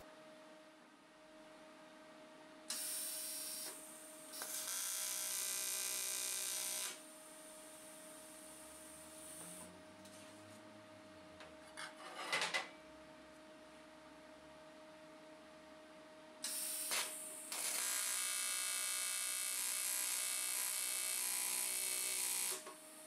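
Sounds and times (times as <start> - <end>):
welding arc buzzing: 2.7 - 7.0, 8.8 - 9.7, 16.4 - 22.7.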